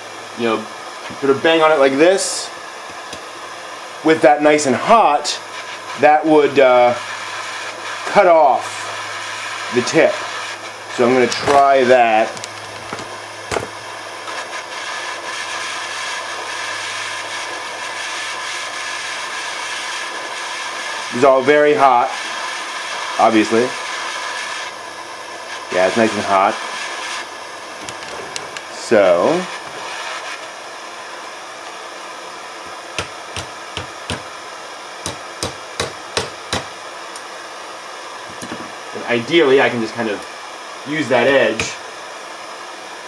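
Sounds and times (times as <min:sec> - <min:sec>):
blowtorch hissing: 0:00.0 - 0:43.0
hammer striking nail on anvil: 0:33.0 - 0:34.3, 0:35.1 - 0:36.7.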